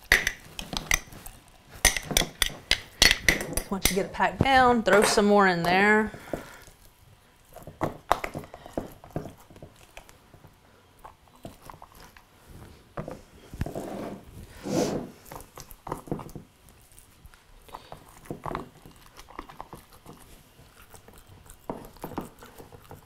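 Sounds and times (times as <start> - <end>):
funnel and jar clicking: 1.8 - 4.1.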